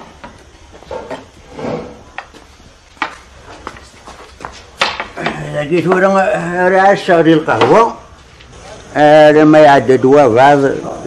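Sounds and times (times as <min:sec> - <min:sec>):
soft shuffling footsteps: 0:02.1 - 0:04.8
walking cane tapping on tiles: 0:02.1 - 0:06.2.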